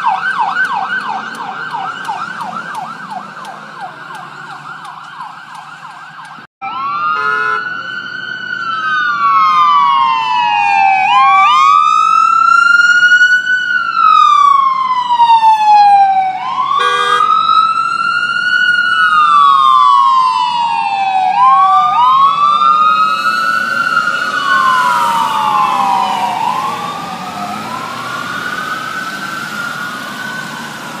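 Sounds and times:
ambulance siren wailing: 0.0 - 31.0
road noise: 0.0 - 31.0
vehicle horn blast: 7.2 - 7.7, 16.8 - 17.3.

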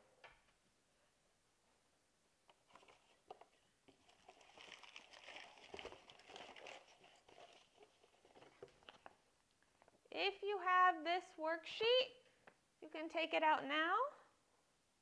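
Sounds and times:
paper rustling and crinkling: 2.5 - 9.2.

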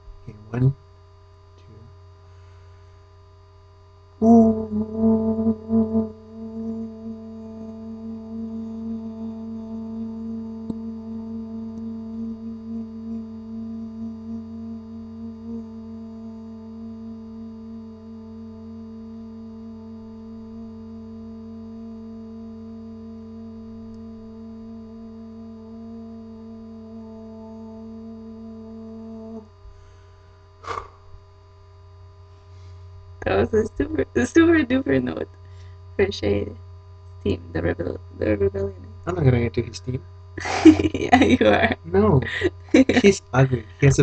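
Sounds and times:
person singing a long note: 4.2 - 18.2, 43.0 - 44.0.

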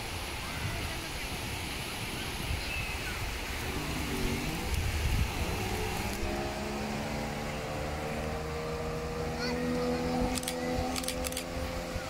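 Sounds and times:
low rumbling noise: 3.0 - 12.0
outboard motor speeding up: 3.4 - 12.0.

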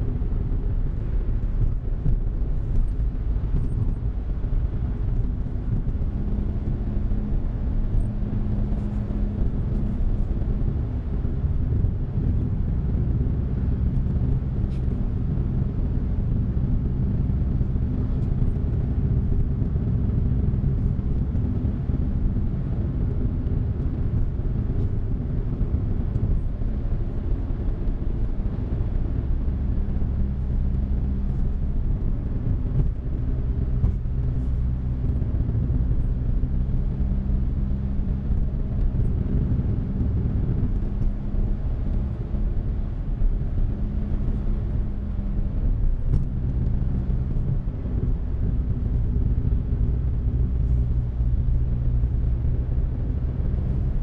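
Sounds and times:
car engine and road noise: 0.0 - 54.0.

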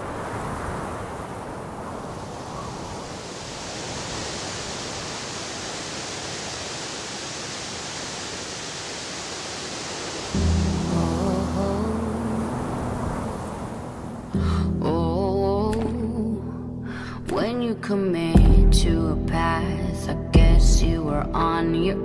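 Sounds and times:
waterfall rushing over rocks: 0.0 - 14.4
music: 10.4 - 12.4, 14.3 - 22.0.

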